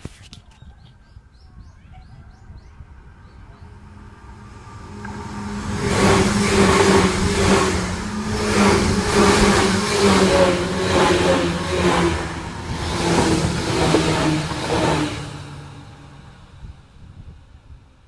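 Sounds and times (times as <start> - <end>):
traction motor hum: 2.6 - 16.8
train wheels on rails: 2.6 - 17.6.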